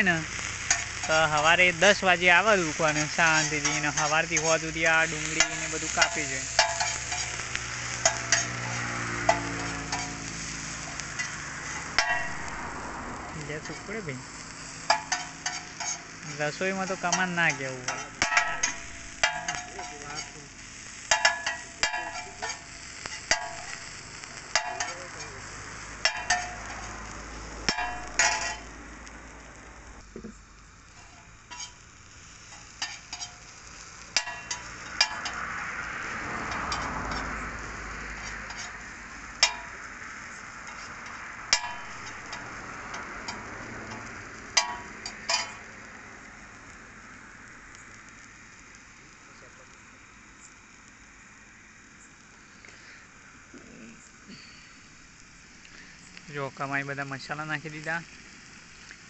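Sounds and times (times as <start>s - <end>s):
food sizzling on griddle: 0.0s - 59.0s
metal spatula scraping: 2.5s - 12.5s, 14.6s - 23.8s, 24.4s - 25.3s, 27.7s - 28.7s, 30.9s - 35.4s, 38.2s - 38.8s, 40.6s - 42.5s
spatula tapping pan: 21.1s - 22.6s, 26.0s - 26.7s, 34.2s - 35.4s, 44.6s - 45.6s.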